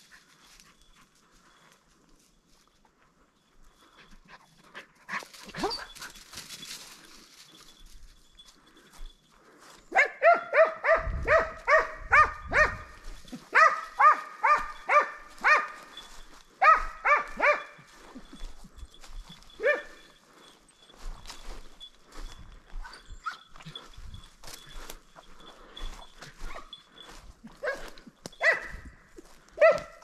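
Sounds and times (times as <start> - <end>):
hound barking: 9.9 - 17.9, 19.6 - 20.2, 27.5 - 28.9, 29.5 - 30.0.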